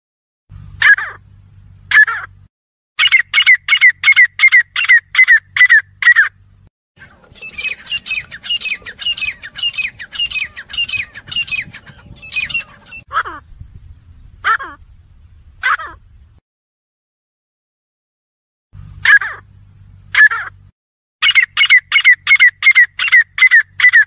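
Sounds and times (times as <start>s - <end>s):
francolins calling harsh notes: 3.0s - 6.3s, 7.0s - 13.6s, 21.2s - 24.0s.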